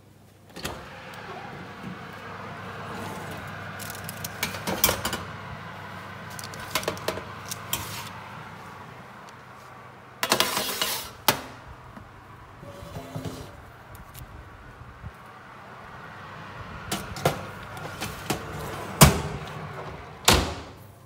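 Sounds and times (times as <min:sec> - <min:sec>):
steady hum: 0:00.5 - 0:10.2.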